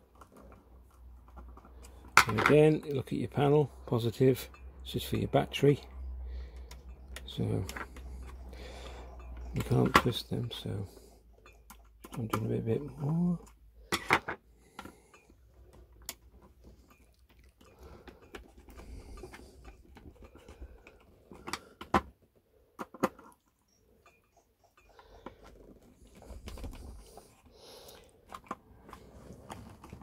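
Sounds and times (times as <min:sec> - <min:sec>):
cable handling rustle: 0:25.2 - 0:30.0.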